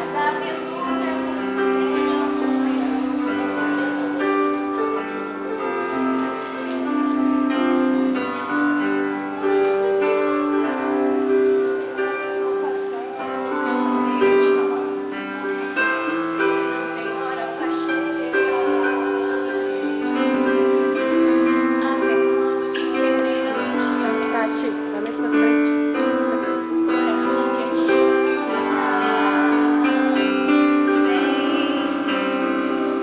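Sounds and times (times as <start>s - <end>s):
electronic keyboard piano tune: 0.0s - 33.0s.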